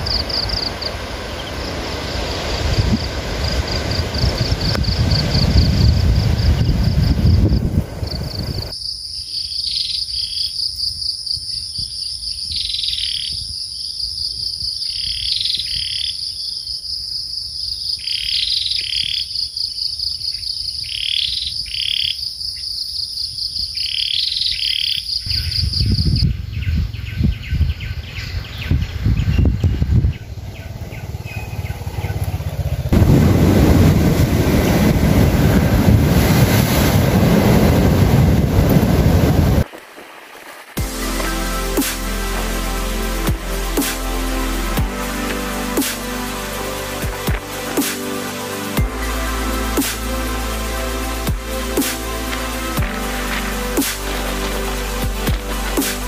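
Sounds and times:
low rushing noise: 0:00.0 - 0:08.7, 0:30.4 - 0:39.7, 0:40.4 - 0:56.0
crickets trilling: 0:00.0 - 0:32.2.

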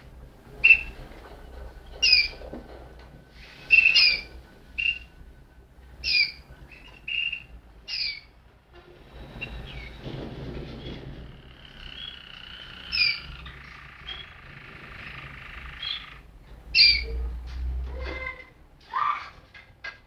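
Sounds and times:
low rumbling noise: 0:00.0 - 0:18.8
canary chirping: 0:00.6 - 0:01.0, 0:01.9 - 0:02.4, 0:03.4 - 0:05.2, 0:05.9 - 0:08.4, 0:09.4 - 0:10.0, 0:11.4 - 0:17.3.

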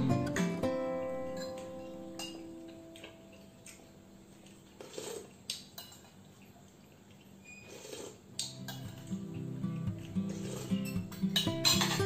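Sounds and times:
spoon and fork scraping plate: 0:10.2 - 0:12.0.

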